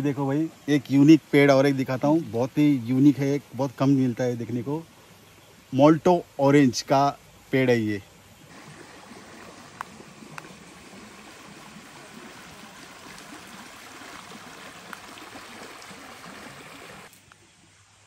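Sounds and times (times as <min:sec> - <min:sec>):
running water rushing: 0:08.5 - 0:17.2
faint clicks: 0:09.8 - 0:10.6.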